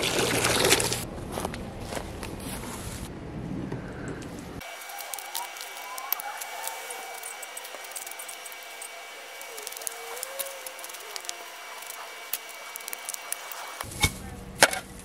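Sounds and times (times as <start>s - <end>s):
crackles of soil and dry grass: 0.6s - 3.1s, 4.1s - 15.0s.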